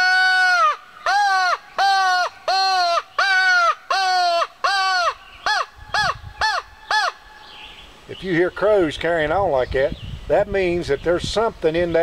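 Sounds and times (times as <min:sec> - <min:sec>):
crow call caws: 0:00.0 - 0:07.6.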